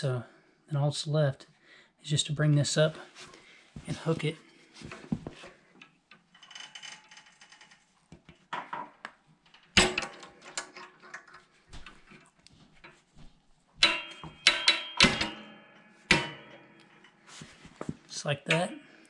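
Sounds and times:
metal spring clinks and rattles: 0:06.1 - 0:08.0, 0:13.8 - 0:17.3.

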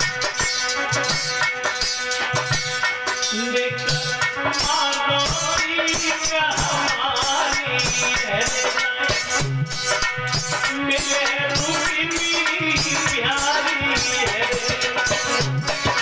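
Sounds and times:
shaker keeping a beat: 0:00.0 - 0:16.0
man singing into a microphone: 0:03.2 - 0:16.0.

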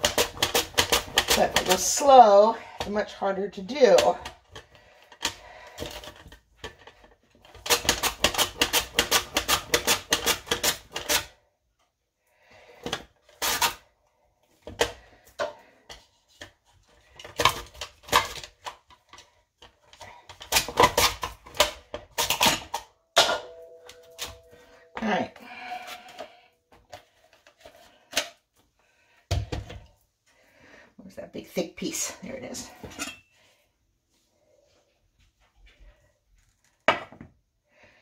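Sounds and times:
squash scraping over mandoline blade: 0:00.0 - 0:03.0, 0:07.5 - 0:11.4.

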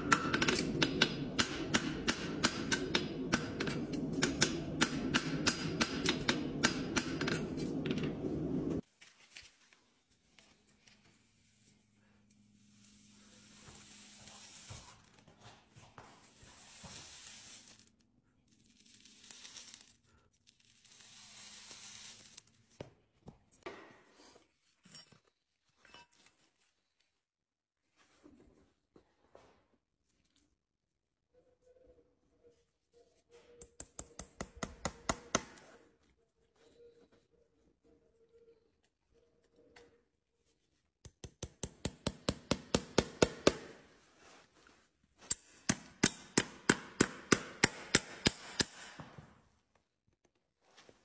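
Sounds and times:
hammer striking anvil: 0:00.0 - 0:08.2, 0:45.3 - 0:49.0
steady low hum: 0:00.0 - 0:08.8
hot horseshoe sizzling on hoof: 0:12.8 - 0:15.0, 0:16.3 - 0:17.9.

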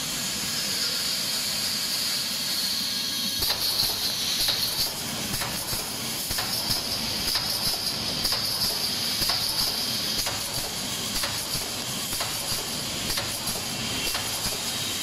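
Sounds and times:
compressed air hissing: 0:00.8 - 0:15.0
welding heads clacking: 0:03.4 - 0:14.8.

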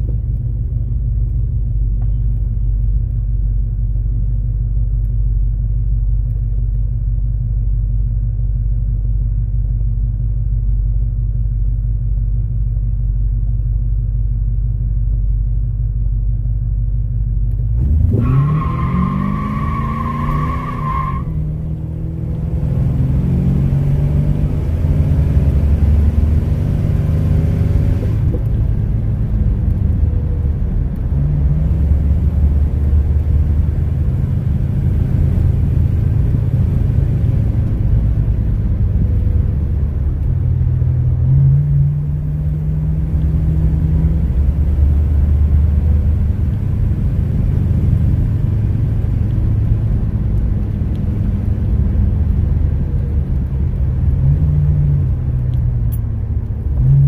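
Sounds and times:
tyre and road noise: 0:17.4 - 0:57.0
car engine revving: 0:17.6 - 0:57.0.

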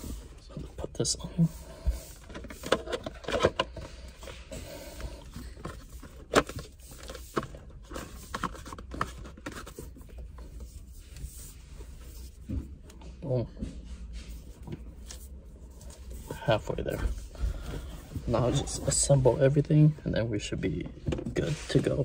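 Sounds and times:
plastic parts clicking and scraping: 0:02.1 - 0:04.3, 0:04.9 - 0:10.4.

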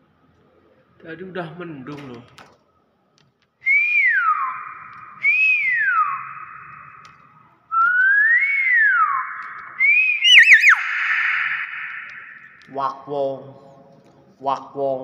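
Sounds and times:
myna whistling calls: 0:03.7 - 0:07.1, 0:07.8 - 0:12.7.

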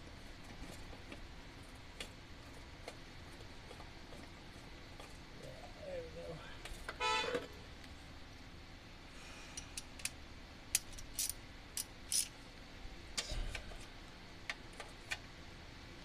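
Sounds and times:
metallic clicks from hand tools: 0:09.6 - 0:12.3.

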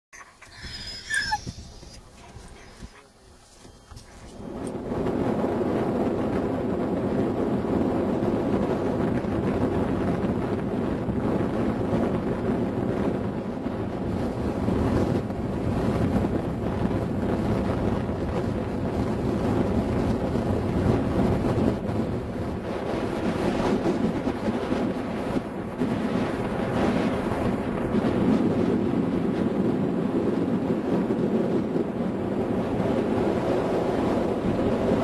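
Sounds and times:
wind blowing across microphone: 0:00.1 - 0:35.0.

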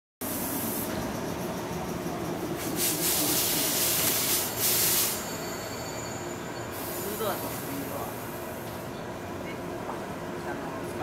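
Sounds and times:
air hissing: 0:00.2 - 0:01.4, 0:02.5 - 0:09.0
mechanical hum: 0:00.2 - 0:11.0
slowly moving train: 0:00.2 - 0:11.0.

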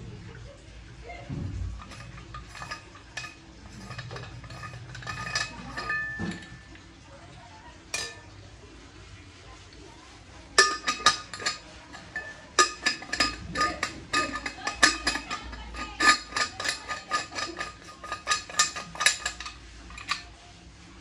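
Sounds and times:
metal utensils clinking: 0:01.6 - 0:06.9, 0:07.9 - 0:08.4, 0:10.5 - 0:20.3.

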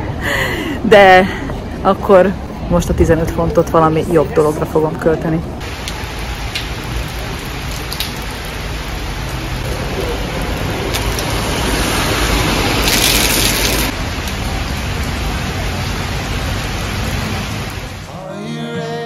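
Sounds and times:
heavy rain on pavement: 0:05.6 - 0:18.1.

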